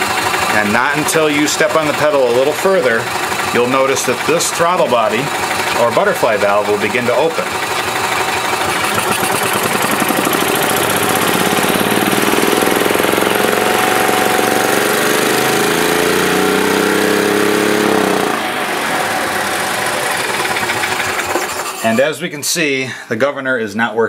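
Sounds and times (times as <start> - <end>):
golf cart engine revving: 0.0 - 22.1.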